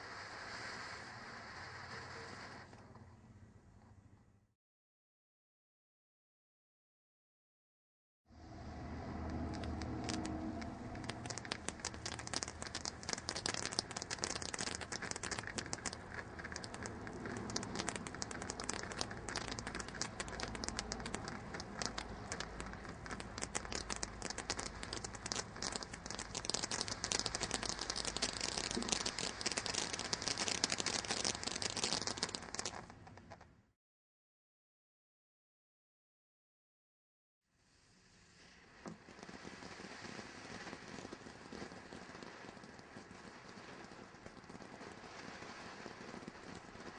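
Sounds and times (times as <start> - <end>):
firework hissing and crackling: 0.0 - 3.0, 8.4 - 33.4, 37.6 - 46.9.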